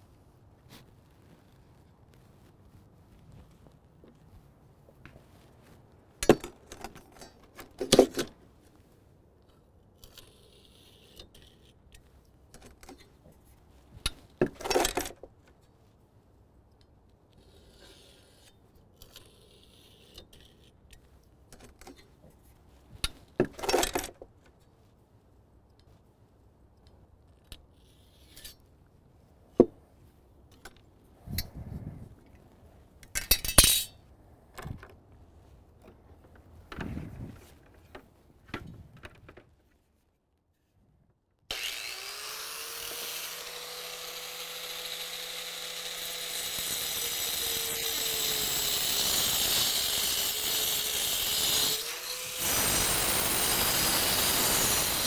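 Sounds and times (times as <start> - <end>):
metal tools clinking: 33.1 - 34.0.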